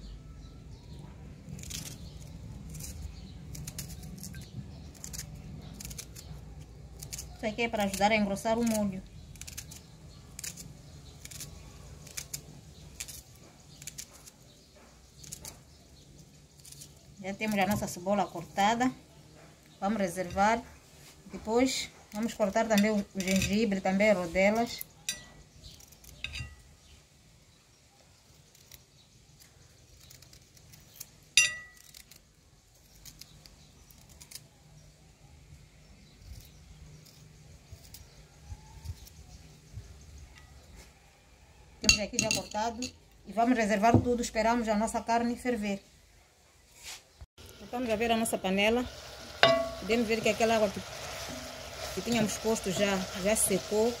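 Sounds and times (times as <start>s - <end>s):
knife slicing onion: 1.4s - 15.7s, 49.0s - 54.0s
sharp ringing clink: 31.4s - 31.8s, 49.4s - 49.8s.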